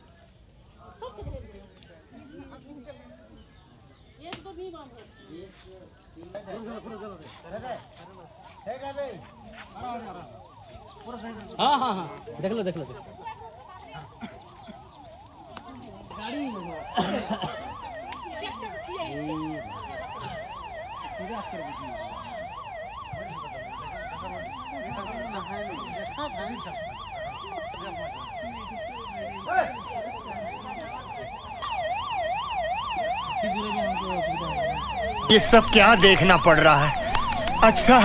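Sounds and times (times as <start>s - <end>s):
siren yelping: 8.1s - 38.0s.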